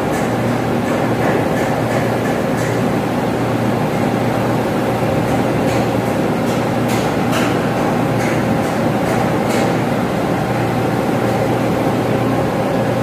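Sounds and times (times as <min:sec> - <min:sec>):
ventilation machinery humming: 0:00.0 - 0:13.0.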